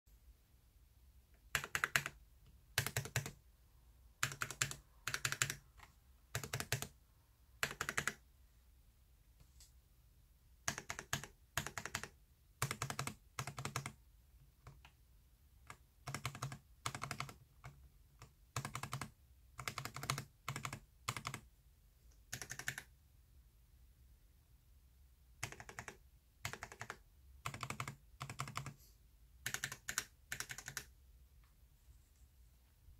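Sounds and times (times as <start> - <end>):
mechanical keyboard keys clacking: 2.8 - 3.4, 22.4 - 22.9, 29.5 - 30.9.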